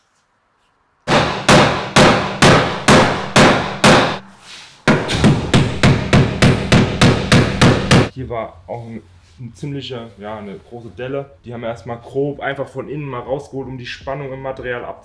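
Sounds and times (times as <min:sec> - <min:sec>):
hammer striking sheet metal: 0:01.1 - 0:08.1.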